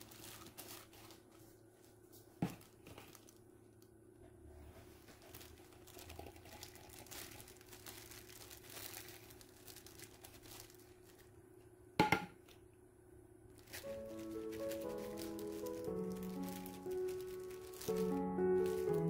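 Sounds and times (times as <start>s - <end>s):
plastic glove crinkling: 0.0s - 1.6s, 2.4s - 3.8s, 4.7s - 11.4s, 13.5s - 19.0s.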